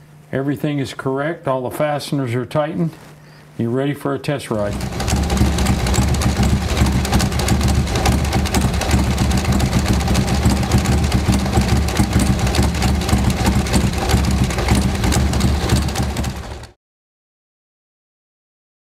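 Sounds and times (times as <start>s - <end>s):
motorcycle engine idling: 4.6s - 16.8s.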